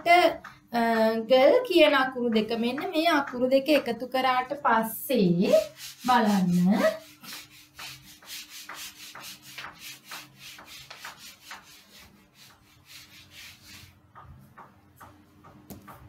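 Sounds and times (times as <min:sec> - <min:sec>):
eraser rubbing on whiteboard: 0:05.3 - 0:14.1.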